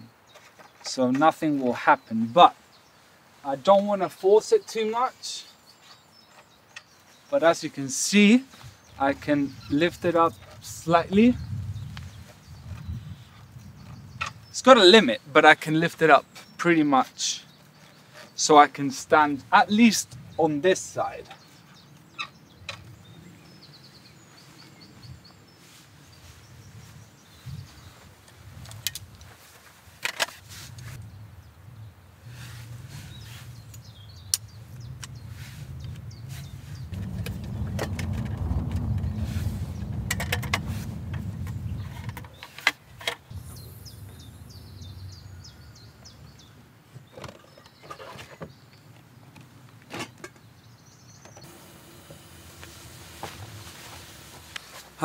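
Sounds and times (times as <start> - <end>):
bird chirping: 0.0 - 28.0, 30.8 - 49.0, 50.2 - 55.0
wind rumbling on microphone: 8.6 - 14.6, 19.6 - 29.4, 30.4 - 46.7, 51.4 - 54.7
camping gear knocks and clatters: 28.2 - 30.9, 37.0 - 39.1, 39.8 - 43.3, 46.9 - 50.6
small bird chirping: 32.8 - 37.7, 43.2 - 48.8.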